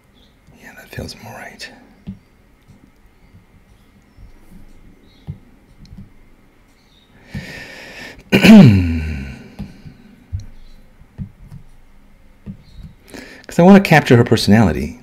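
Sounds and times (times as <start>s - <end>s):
person sneezing: 8.3s - 9.6s.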